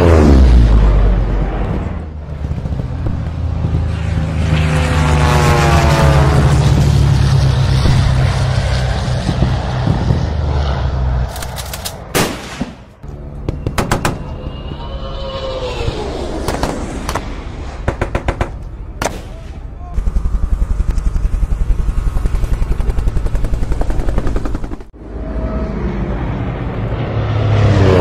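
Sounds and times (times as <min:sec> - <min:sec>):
steady low drone: 0:00.0 - 0:12.2, 0:12.8 - 0:28.0
falling whistle: 0:13.6 - 0:16.3.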